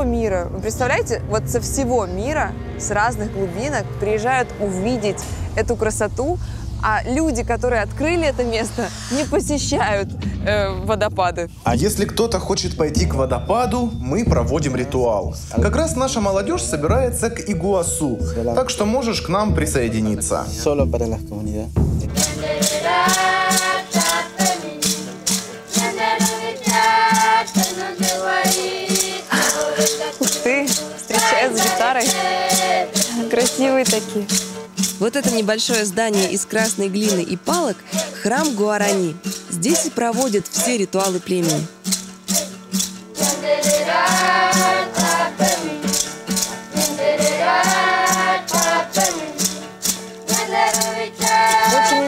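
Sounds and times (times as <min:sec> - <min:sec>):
steady low held note: 0:00.5 - 0:22.1
strummed acoustic guitar: 0:21.8 - 0:52.0
group singing a chant: 0:22.1 - 0:30.4, 0:31.1 - 0:33.7, 0:37.9 - 0:38.2, 0:43.2 - 0:49.6, 0:50.3 - 0:52.0
rattle shaken in a beat: 0:22.1 - 0:52.0.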